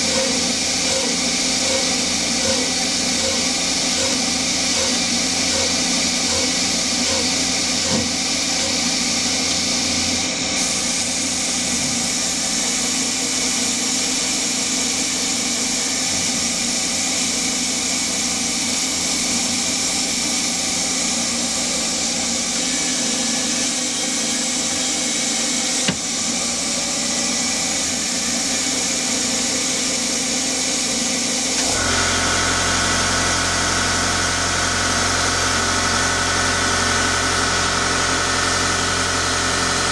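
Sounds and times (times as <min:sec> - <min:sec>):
deep motor hum: 0:00.0 - 0:09.0
machine hum: 0:00.0 - 0:09.4
compressed air hissing: 0:00.0 - 0:13.2.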